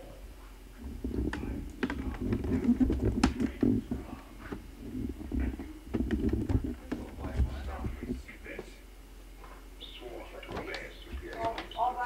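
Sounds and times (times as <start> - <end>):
low rubbing and bumping: 0.8 - 8.6.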